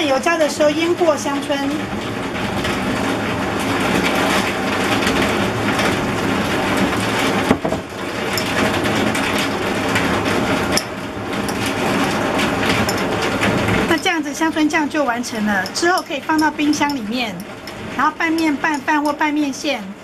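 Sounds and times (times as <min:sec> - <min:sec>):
steady background hum: 0:00.0 - 0:20.0
metal spoon scraping glass jar: 0:15.6 - 0:19.2.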